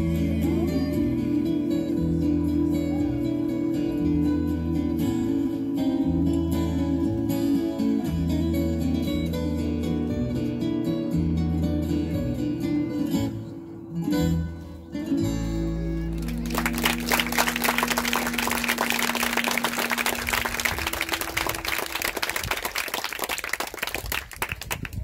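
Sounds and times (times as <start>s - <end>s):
guitar strumming chords: 0.0s - 21.9s
applause: 16.2s - 25.0s.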